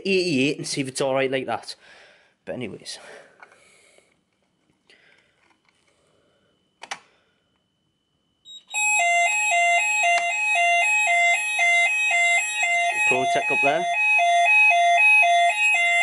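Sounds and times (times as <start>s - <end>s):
two-tone electronic fire alarm: 8.1s - 16.0s.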